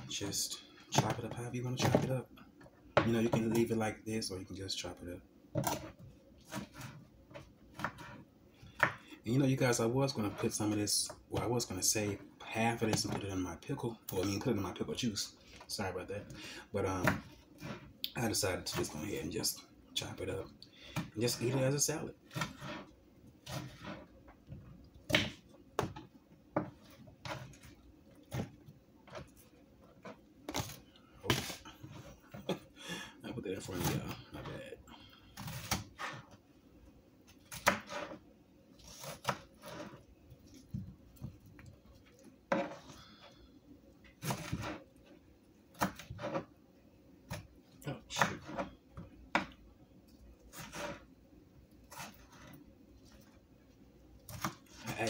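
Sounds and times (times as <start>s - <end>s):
knife chopping on plastic board: 0.9s - 2.1s, 7.7s - 9.0s, 16.9s - 17.9s, 25.1s - 27.7s, 35.4s - 36.3s, 37.5s - 38.2s, 38.8s - 40.0s, 44.2s - 44.8s, 45.7s - 46.5s, 48.1s - 49.6s, 54.3s - 55.0s
knife chopping on cutting board: 7.7s - 8.2s, 25.1s - 26.0s, 35.4s - 36.2s, 37.5s - 38.2s, 44.2s - 44.8s.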